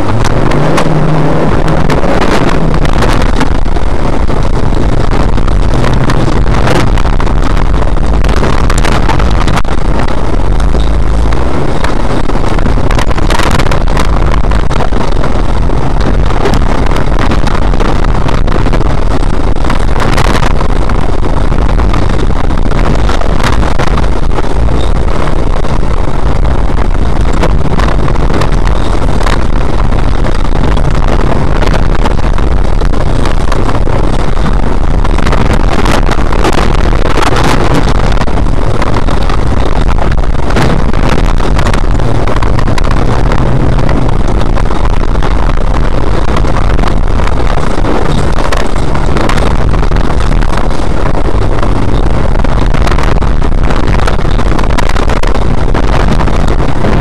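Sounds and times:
car engine running hard: 0.0 - 57.0.

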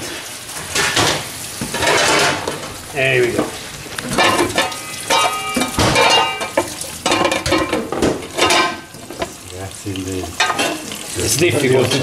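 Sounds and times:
food sizzling in a pan: 0.0 - 12.0
metal pot lid clanking on pan: 0.8 - 2.6, 4.1 - 9.4, 10.3 - 11.0.

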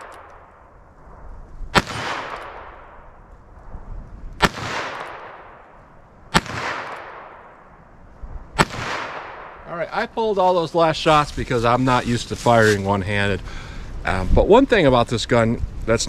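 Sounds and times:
revolver gunshots: 1.7 - 3.2, 4.4 - 7.8, 8.5 - 9.7.

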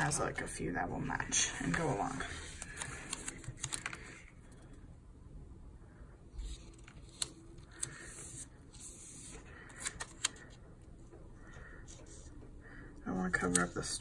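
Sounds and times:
paper rustling: 1.3 - 4.6.

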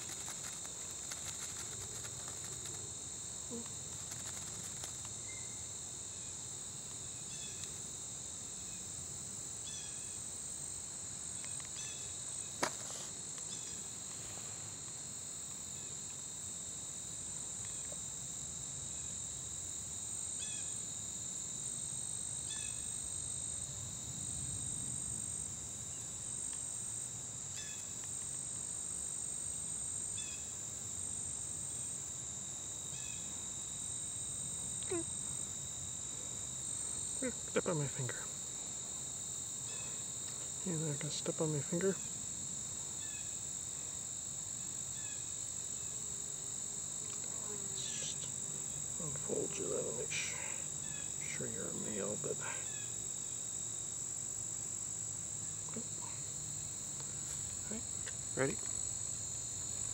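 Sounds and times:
chorus of crickets: 0.0 - 59.9.

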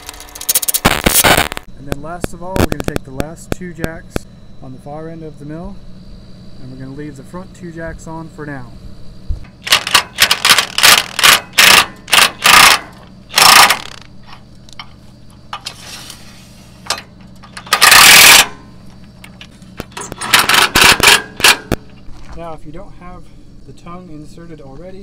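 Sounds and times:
impact wrench hammering: 9.5 - 14.0, 16.9 - 18.6, 19.9 - 21.8.

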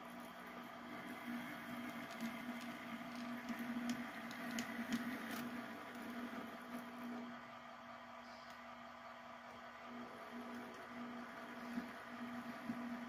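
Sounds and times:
wheels clicking on track: 0.0 - 7.2
model locomotive humming: 0.0 - 13.0.

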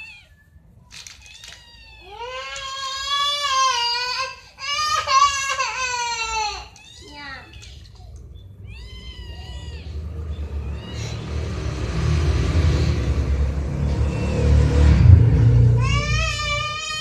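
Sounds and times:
kitten meowing: 0.0 - 0.4, 1.2 - 3.9, 6.2 - 11.4
low rumble: 8.0 - 17.0.

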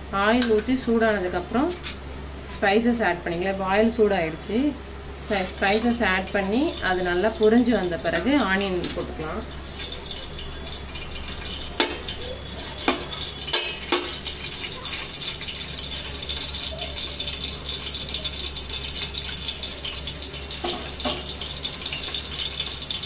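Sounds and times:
spices sizzling in hot oil: 5.1 - 23.0.

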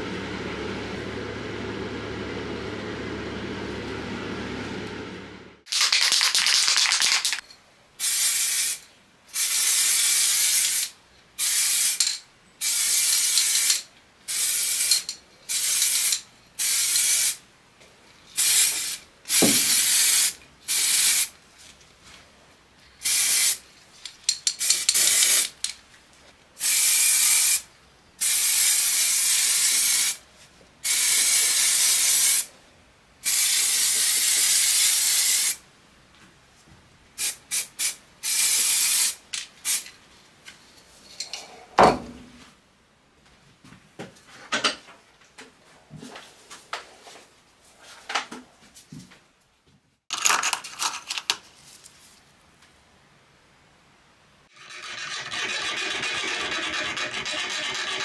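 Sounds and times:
aerosol spray can hissing: 9.4 - 12.0, 18.4 - 21.3, 23.0 - 23.6, 26.6 - 27.6, 37.2 - 39.8.

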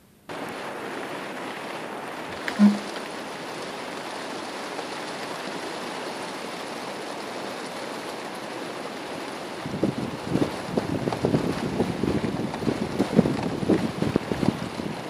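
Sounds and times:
heavy rain hissing: 0.2 - 15.0
short loud blip: 2.5 - 3.0.

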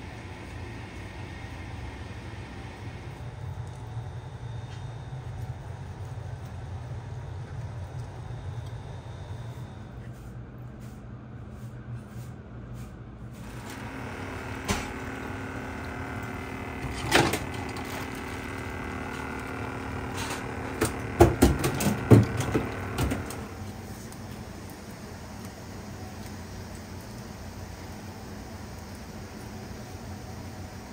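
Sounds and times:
steady machine hum: 0.0 - 10.0, 13.3 - 30.9
knocks and clatters in steel sink: 20.7 - 23.4.

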